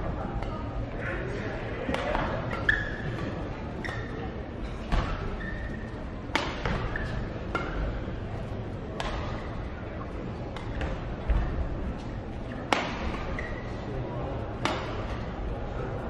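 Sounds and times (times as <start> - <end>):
rackets hitting shuttlecock: 1.9 - 2.6, 6.3 - 7.9, 9.0 - 9.5, 10.5 - 11.0, 12.6 - 13.4, 14.6 - 15.2
shoe squeaks on court: 2.5 - 3.2, 5.1 - 6.0.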